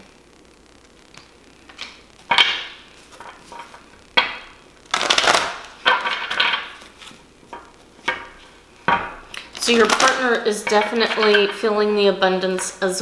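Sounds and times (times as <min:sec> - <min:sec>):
cards being shuffled: 0:04.9 - 0:07.2.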